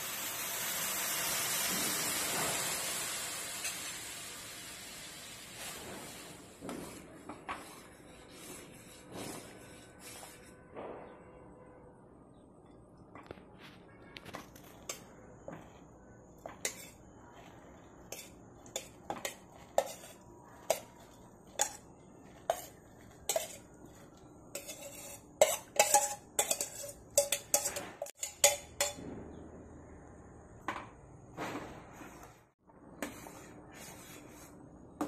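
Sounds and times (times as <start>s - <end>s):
spoon clinking against steel bowl: 18.1s - 24.0s, 24.6s - 29.0s.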